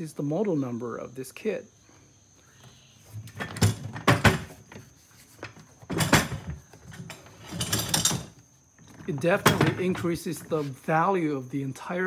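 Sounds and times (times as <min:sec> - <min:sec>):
plastic toolbox knocks and clatter: 0:03.4 - 0:04.6, 0:05.8 - 0:08.3, 0:08.9 - 0:10.1.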